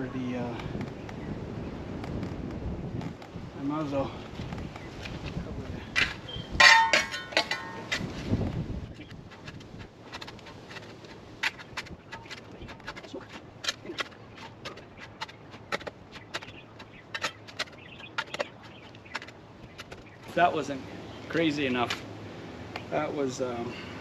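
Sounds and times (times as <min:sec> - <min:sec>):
shovel scraping soil: 0:06.0 - 0:20.4.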